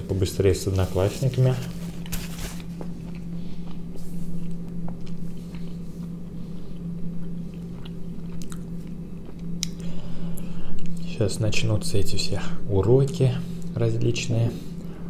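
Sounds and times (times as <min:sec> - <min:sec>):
steady low hum: 0:00.0 - 0:15.0
person chewing: 0:02.9 - 0:11.0.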